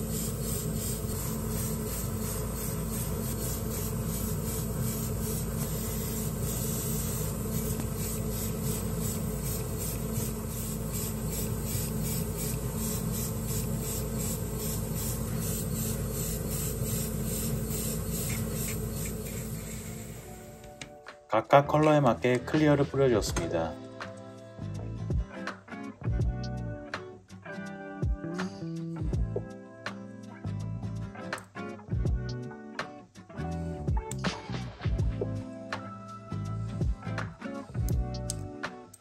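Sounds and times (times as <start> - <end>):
airbrush spraying hiss: 0.0 - 20.7
air compressor humming: 0.0 - 20.9.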